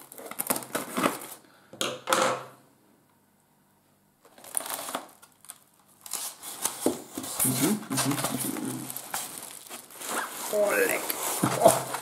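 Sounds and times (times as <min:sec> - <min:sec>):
foam box lid scraping: 0:09.1 - 0:12.0.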